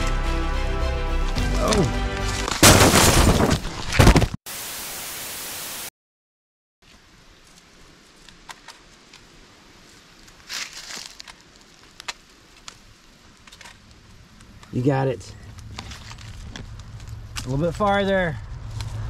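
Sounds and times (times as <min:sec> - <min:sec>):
loud crash: 0:02.6 - 0:04.4
static hiss: 0:04.5 - 0:05.9
rustles and twig cracks: 0:06.8 - 0:19.0.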